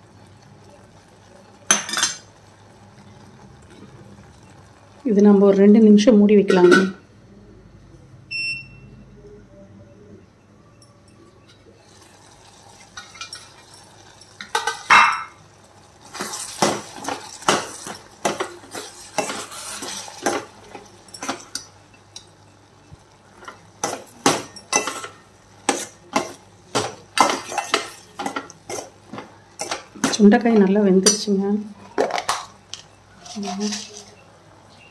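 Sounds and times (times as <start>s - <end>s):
metal ladle scraping a pot: 16.0s - 21.6s, 33.2s - 34.2s.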